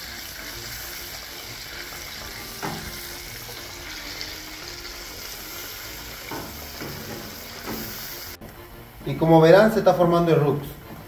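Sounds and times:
butter and flour sizzling: 0.0 - 8.4.

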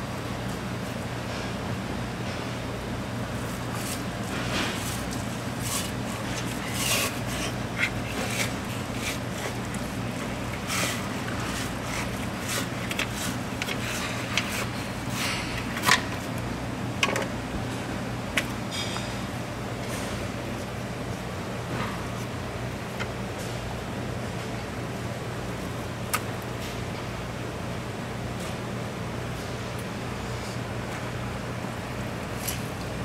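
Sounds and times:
steady low hum: 0.0 - 33.0
knife scraping fish skin on board: 3.7 - 16.0.

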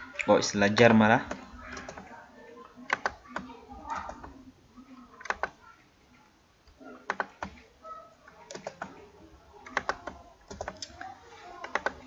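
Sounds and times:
keyboard typing: 1.2 - 2.2, 2.8 - 12.0
mouse clicks: 2.9 - 4.4, 5.2 - 5.6, 9.6 - 12.0.

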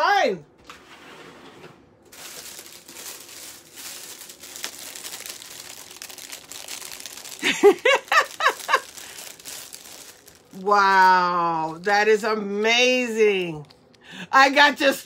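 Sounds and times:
plastic bag crinkling: 1.9 - 11.9
woman laughing: 7.3 - 9.3.

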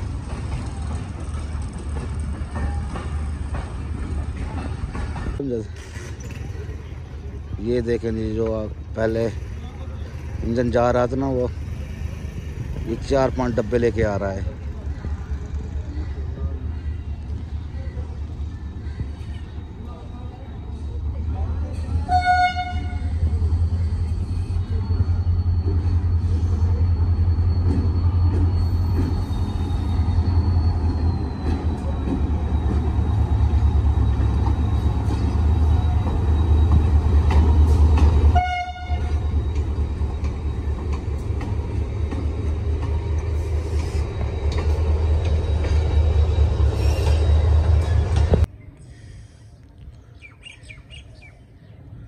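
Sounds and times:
diesel locomotive rumbling: 0.0 - 49.8
train horn note: 38.3 - 39.2.

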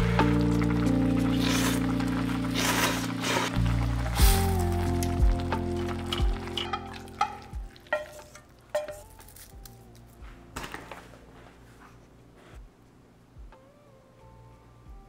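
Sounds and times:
wet noodles stirred in broth: 1.3 - 3.6
chopsticks clinking against bowl: 6.5 - 9.5.

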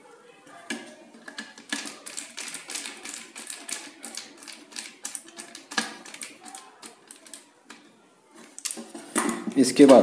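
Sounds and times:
hard plastic clicks and scrapes: 0.7 - 7.8.

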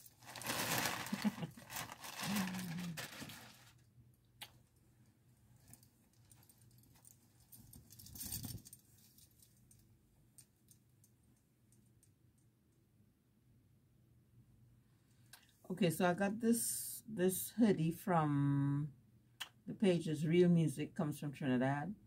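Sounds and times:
plastic packaging rustling: 0.0 - 3.8.

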